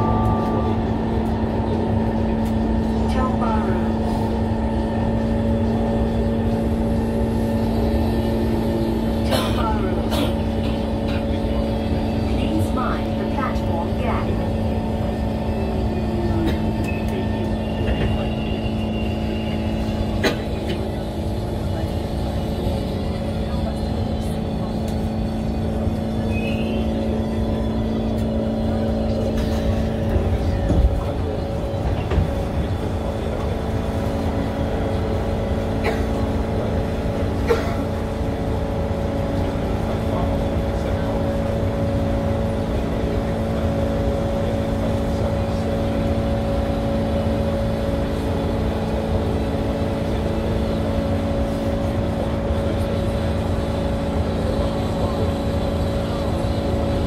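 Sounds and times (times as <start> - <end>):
steady humming tones: 0.0 - 57.0
train rumbling on board: 0.0 - 57.0.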